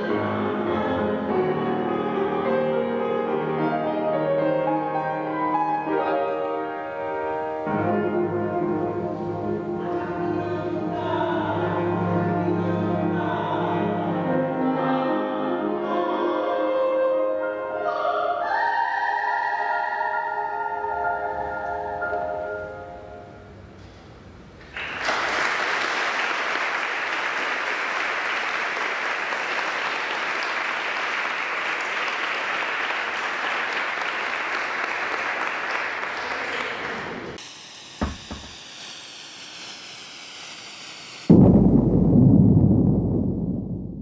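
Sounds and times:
music: 0.0s - 23.8s
audience applauding: 24.6s - 37.4s
faint sweeping sound: 37.2s - 41.4s
thump: 38.0s - 38.6s.

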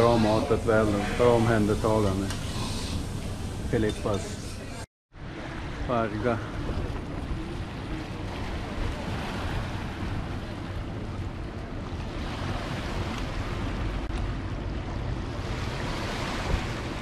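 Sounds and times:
sea waves washing: 0.0s - 4.5s, 5.2s - 17.0s
wind on microphone: 5.2s - 17.0s.

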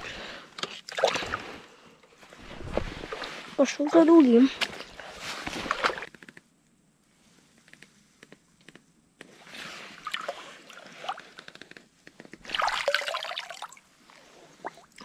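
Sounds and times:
water sloshing and dripping: 0.6s - 1.6s, 2.4s - 6.1s, 9.9s - 11.3s, 12.4s - 15.0s.

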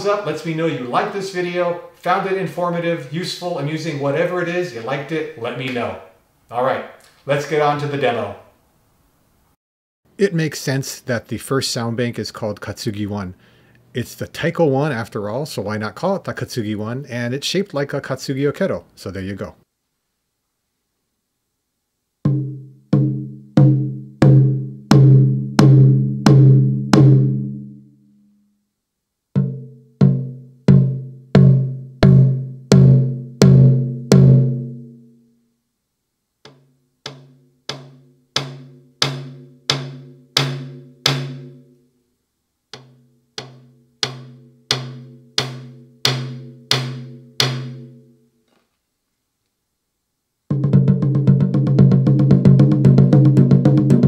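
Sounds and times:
electronic drum strokes: 50.5s - 54.0s.

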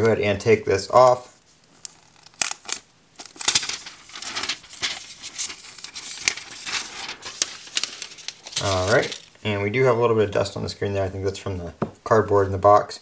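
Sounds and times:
plastic sleeve crinkling: 0.9s - 9.4s.

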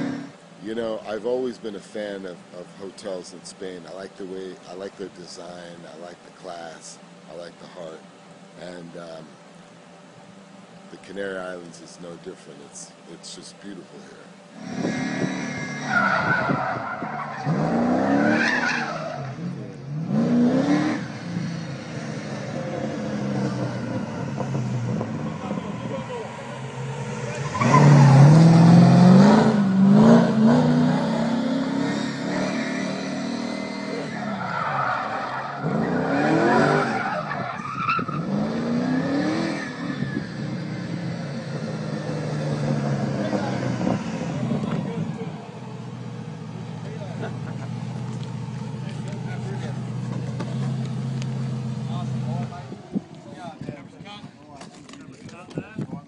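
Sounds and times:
car engine revving: 0.0s - 1.5s, 14.3s - 53.5s
tyres screeching: 14.5s - 51.5s.

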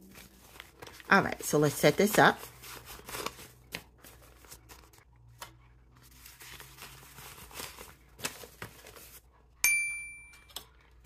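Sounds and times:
paper banknotes rustling: 0.0s - 9.3s.

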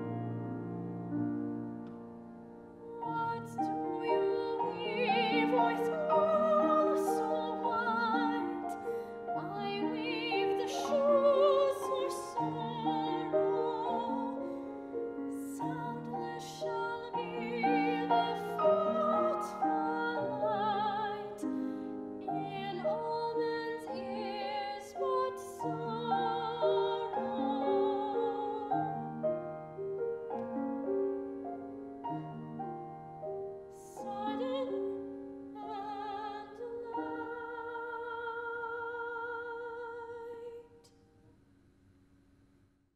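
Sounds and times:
soprano singing: 0.0s - 40.9s
grand piano: 0.0s - 41.4s.

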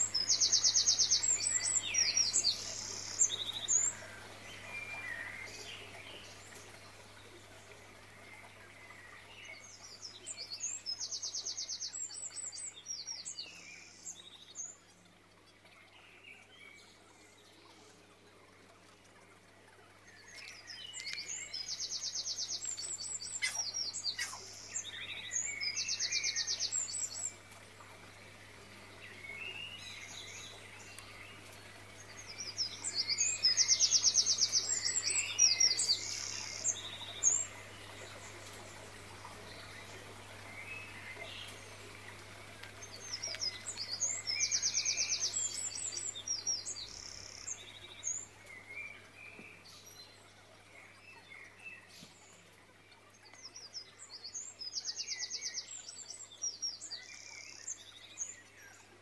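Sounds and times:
songbird trilling and chirping: 20.4s - 27.3s.

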